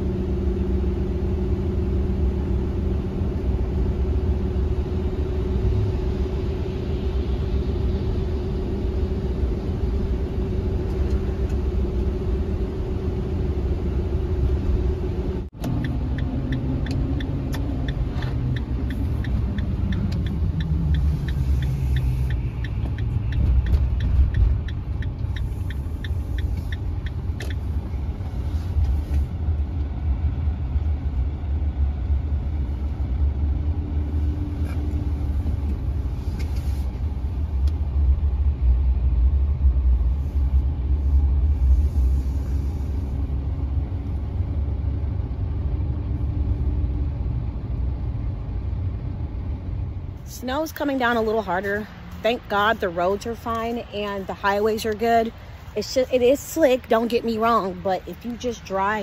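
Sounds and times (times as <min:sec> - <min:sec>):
engine and road rumble: 0:00.0 - 0:59.0
turn signal ticking: 0:14.5 - 0:30.0.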